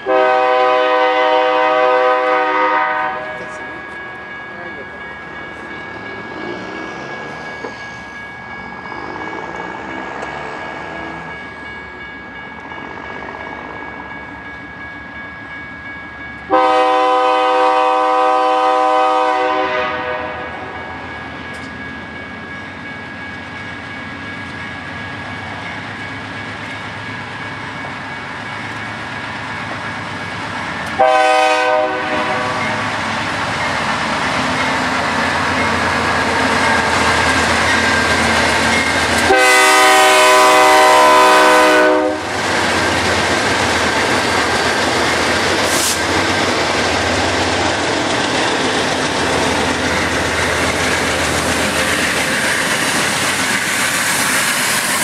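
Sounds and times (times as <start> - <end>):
locomotive air horn blasts: 0.0 - 3.7, 16.5 - 20.7, 31.0 - 32.6, 39.2 - 42.3
train wheels rumbling: 0.0 - 55.0.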